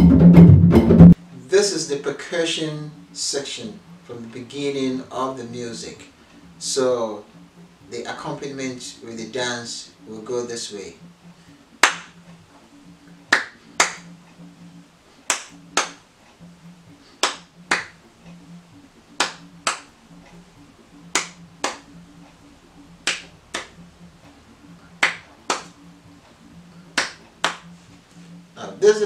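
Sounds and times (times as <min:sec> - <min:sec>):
hand claps: 0:11.8 - 0:12.3, 0:13.3 - 0:14.5, 0:15.2 - 0:16.0, 0:17.1 - 0:18.0, 0:19.1 - 0:20.3, 0:21.0 - 0:22.0, 0:23.0 - 0:23.8, 0:25.0 - 0:25.9, 0:26.8 - 0:28.3.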